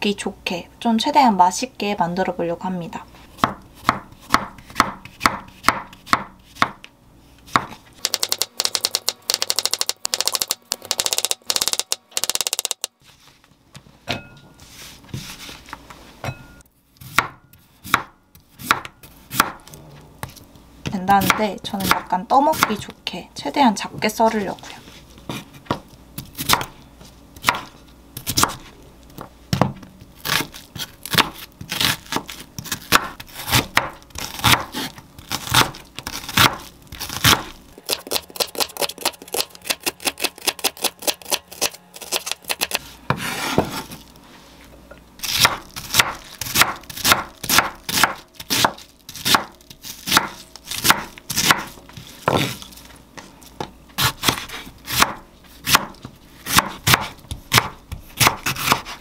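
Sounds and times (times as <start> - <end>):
knife chopping on wooden board: 3.4 - 6.9, 7.5 - 12.8, 17.0 - 22.8, 25.3 - 26.7, 27.4 - 44.0, 45.2 - 52.6, 53.6 - 59.0.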